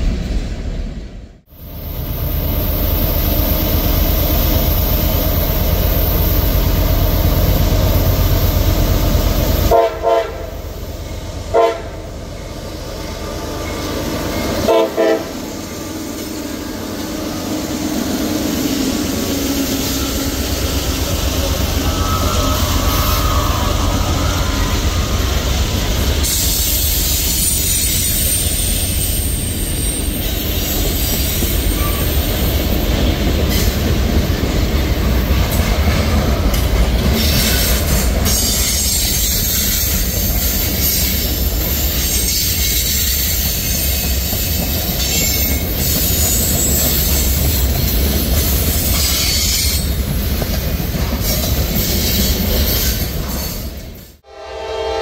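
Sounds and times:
diesel locomotives rumbling: 0.0 - 55.0
train horn blasts: 9.7 - 10.6, 11.5 - 12.1, 14.6 - 15.5, 54.2 - 55.0.

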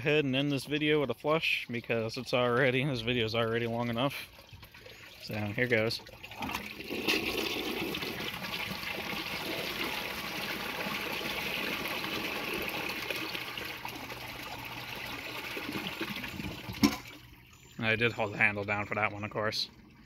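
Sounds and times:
toilet flushing: 4.6 - 17.4.

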